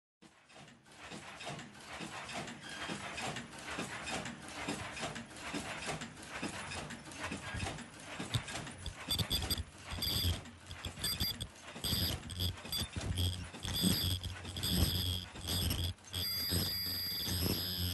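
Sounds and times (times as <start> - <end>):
machine rhythmic mechanical clatter: 0.2 - 17.9
high machine whine: 8.3 - 17.9
low machine hum: 8.3 - 17.9.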